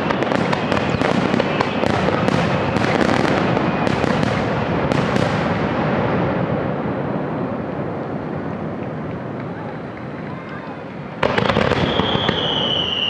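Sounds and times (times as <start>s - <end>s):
sharp firework cracks: 0.0s - 6.9s, 11.2s - 13.0s
fireworks barrage rumbling: 0.0s - 13.0s.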